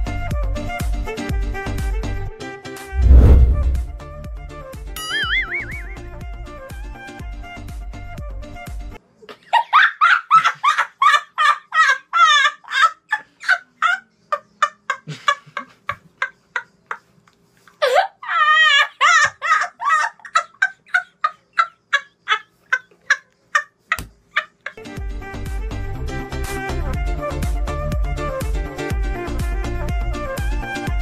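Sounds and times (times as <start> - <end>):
boy laughing hysterically: 9.5 - 16.7, 17.8 - 24.8.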